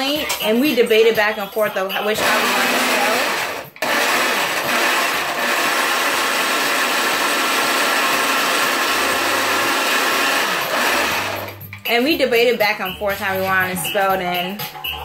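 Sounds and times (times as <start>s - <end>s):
blender motor running: 2.1s - 11.6s.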